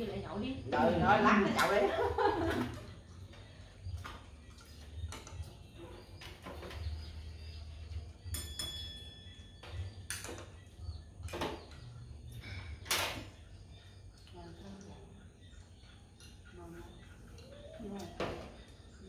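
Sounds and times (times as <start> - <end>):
china clinking: 8.2 - 10.3.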